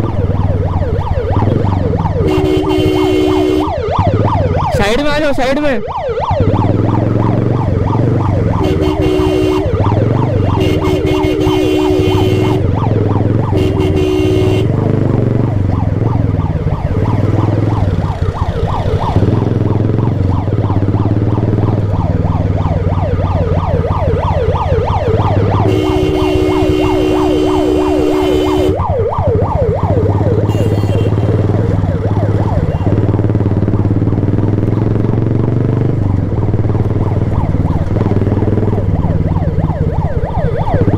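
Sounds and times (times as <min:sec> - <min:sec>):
ambulance siren yelping: 0:00.0 - 0:34.4, 0:36.0 - 0:40.9
motorcycle engine running: 0:00.0 - 0:40.9
horn blasts: 0:02.2 - 0:03.8, 0:08.6 - 0:12.8, 0:13.5 - 0:14.8, 0:25.6 - 0:28.8, 0:30.5 - 0:31.4.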